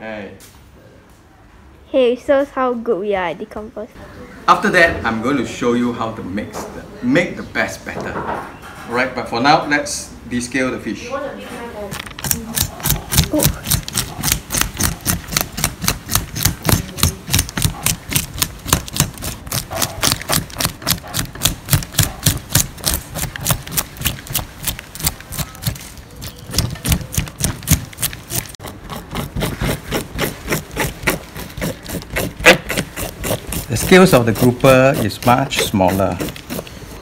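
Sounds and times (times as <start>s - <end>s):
fork scraping fish scales: 12.2s - 37.0s.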